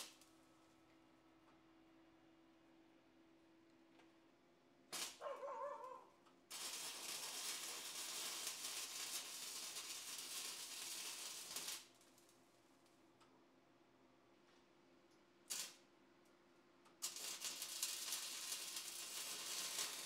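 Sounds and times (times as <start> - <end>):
welding arc crackling and hissing: 5.0 - 5.2, 6.5 - 12.0, 15.5 - 15.8, 17.0 - 20.0.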